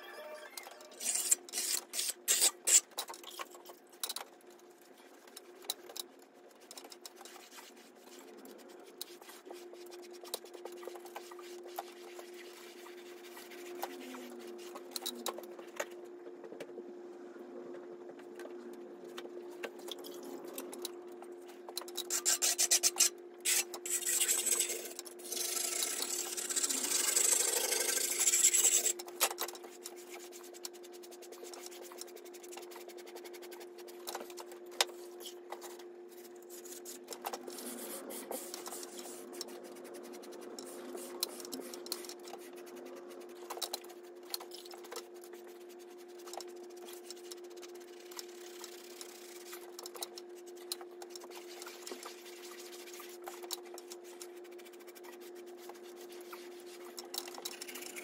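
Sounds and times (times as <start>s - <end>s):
trowel scraping plaster: 1.0s - 2.9s, 22.1s - 24.7s
steady hum: 4.4s - 58.0s.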